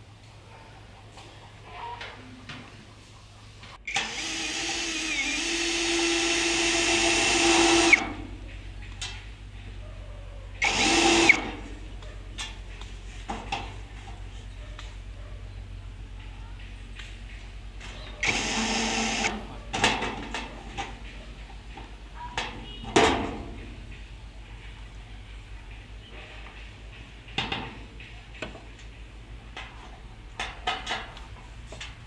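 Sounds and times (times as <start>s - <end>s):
electric power drill running: 3.9s - 8.1s, 10.6s - 11.6s, 18.2s - 19.4s.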